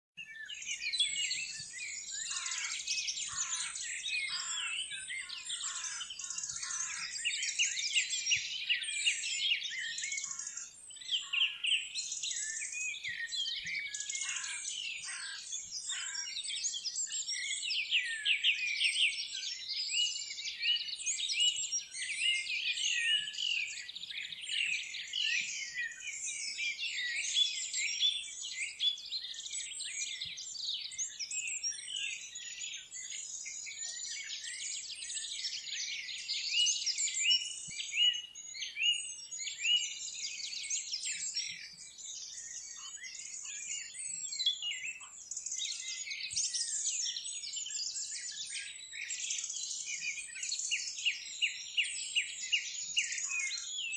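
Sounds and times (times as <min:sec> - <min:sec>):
birds chirping and trilling: 0:00.2 - 0:53.9.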